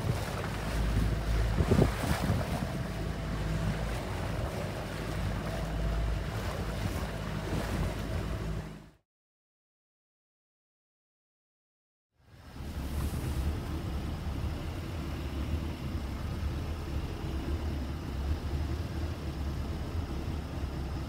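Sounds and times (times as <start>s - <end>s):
wind buffeting microphone: 0.0s - 8.9s
choppy water washing past boat: 0.0s - 9.0s, 12.2s - 21.0s.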